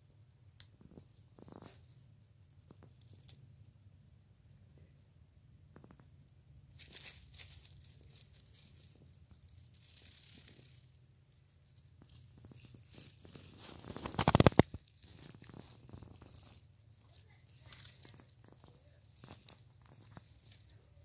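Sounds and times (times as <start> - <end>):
rustling in dry straw: 6.6 - 21.0
fur brushing microphone: 12.0 - 21.0.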